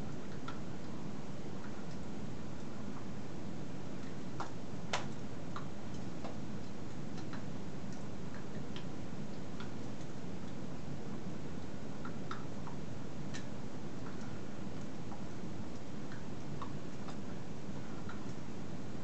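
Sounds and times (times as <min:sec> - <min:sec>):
background hiss and hum: 0:00.0 - 0:19.0
small clicks and taps: 0:04.0 - 0:10.6, 0:11.6 - 0:18.4.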